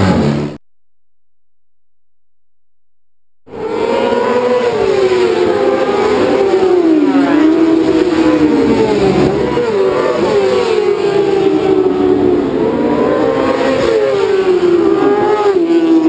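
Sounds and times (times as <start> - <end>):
racing motorcycles passing: 3.5 - 16.0.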